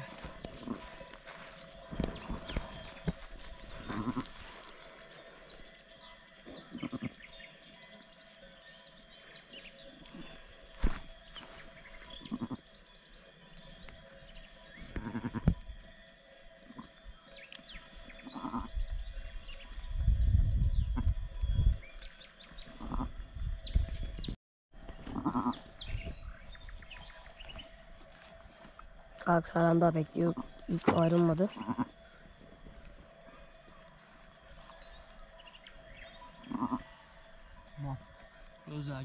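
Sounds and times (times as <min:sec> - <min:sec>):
sheep bleating: 0:03.8 - 0:04.5, 0:06.7 - 0:07.2, 0:12.2 - 0:12.6, 0:14.9 - 0:15.5, 0:18.3 - 0:18.7, 0:31.5 - 0:32.0, 0:36.4 - 0:37.1.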